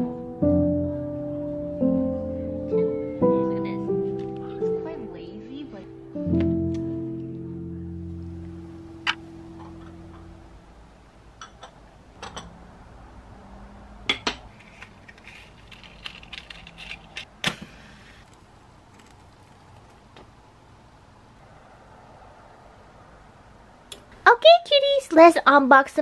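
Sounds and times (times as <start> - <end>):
background music chord: 0.0 - 10.6
small objects clicking: 14.6 - 17.3.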